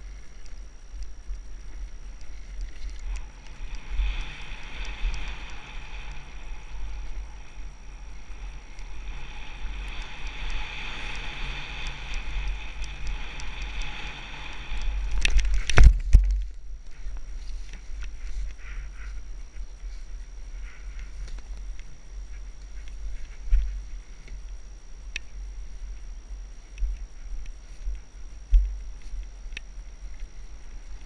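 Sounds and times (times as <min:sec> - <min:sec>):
dirt bike engine running: 0:00.0 - 0:31.0.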